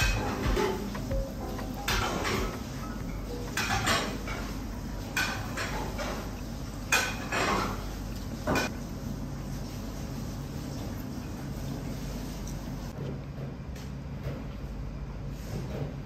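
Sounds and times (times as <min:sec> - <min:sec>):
dishes and cutlery clinking: 0:00.0 - 0:08.7.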